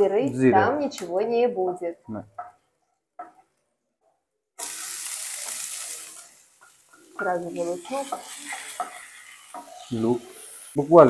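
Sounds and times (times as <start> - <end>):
onion sizzling in hot fat: 4.6 - 11.0.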